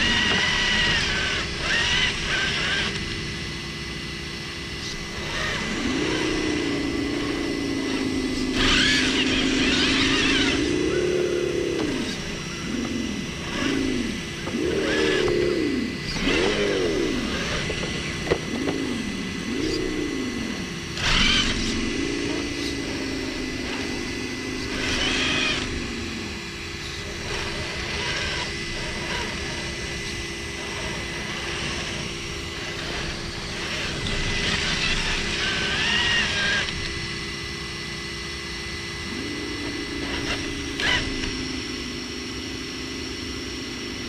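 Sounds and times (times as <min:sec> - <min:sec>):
toy car motor whining: 0:00.0 - 0:03.4, 0:04.8 - 0:37.0, 0:38.9 - 0:44.0.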